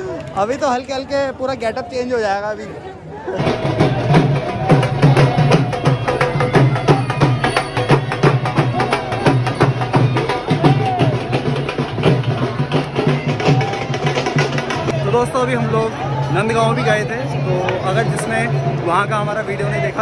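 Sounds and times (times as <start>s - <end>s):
fast dense drumming: 3.4s - 15.6s.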